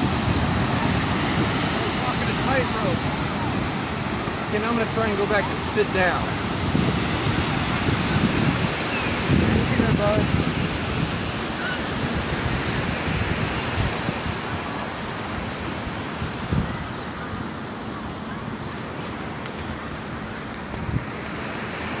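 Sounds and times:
wind buffeting microphone: 0.0 - 17.5
ocean surf: 0.0 - 22.0.

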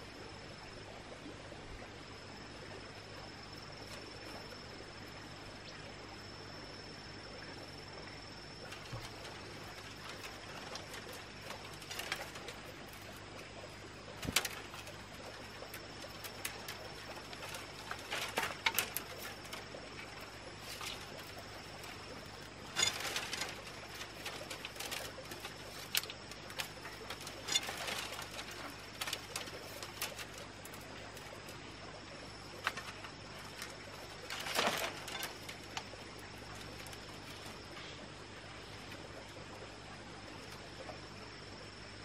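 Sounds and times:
bamboo strips rustling and clicking: 8.6 - 38.0.

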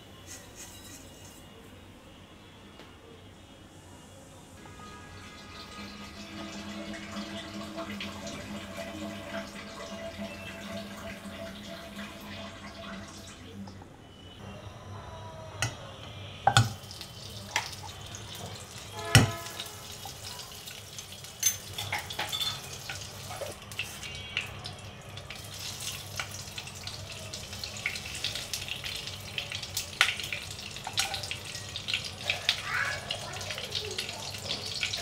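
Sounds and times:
ghee sizzling and crackling: 4.6 - 13.3, 16.5 - 35.0
metal spoon knocking pan: 16.5 - 16.8.

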